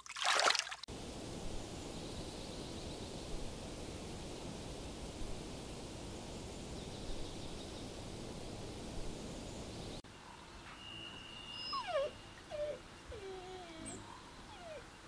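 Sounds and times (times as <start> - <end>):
puppies whimpering: 11.5 - 14.8.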